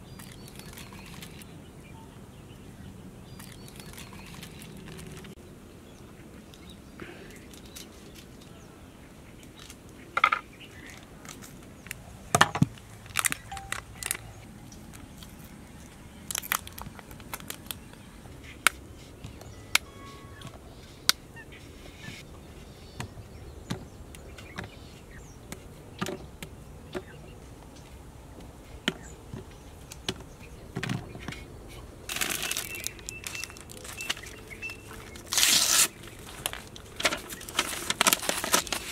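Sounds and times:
wrapper rustling: 12.9 - 18.1, 32.1 - 38.9
chocolate bars snapping: 16.3 - 17.9.

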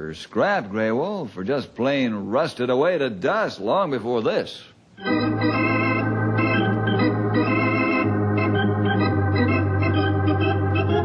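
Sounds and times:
organ chords: 5.0 - 11.0.

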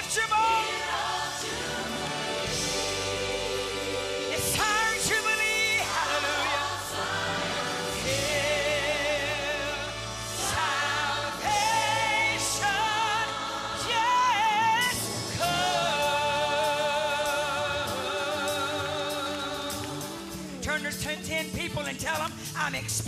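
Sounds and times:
woman singing gospel: 0.0 - 21.7
musical accompaniment: 0.0 - 23.0.

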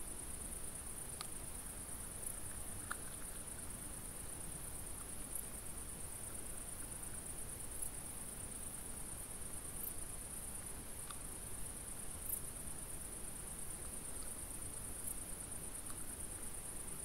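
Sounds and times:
crickets trilling: 0.0 - 17.0
faint click: 11.0 - 11.2, 15.8 - 16.0.

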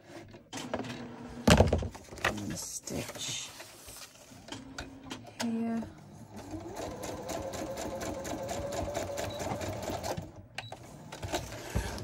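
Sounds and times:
sewing machine stitching: 6.3 - 12.0.

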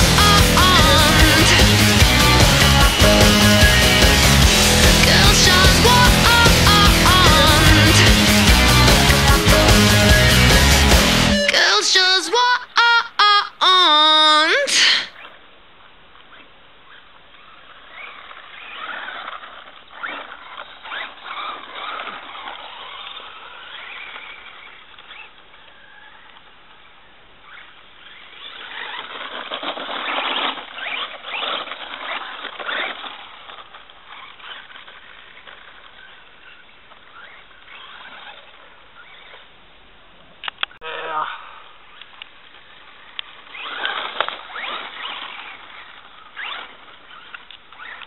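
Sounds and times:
rc truck motor whining: 43.0 - 48.0.

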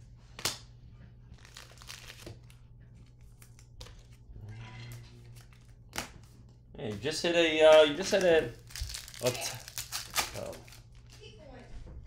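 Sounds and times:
foil wrappers crinkling: 1.4 - 4.1, 7.6 - 11.3.

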